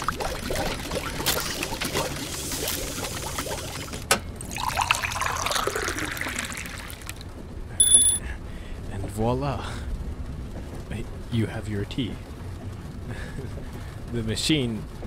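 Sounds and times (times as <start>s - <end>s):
water pouring and trickling: 0.0s - 7.2s
bright ding: 7.8s - 8.2s.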